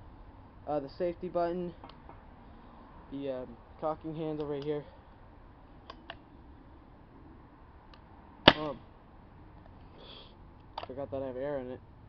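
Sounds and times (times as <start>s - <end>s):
compressed air pop: 8.5s - 8.8s.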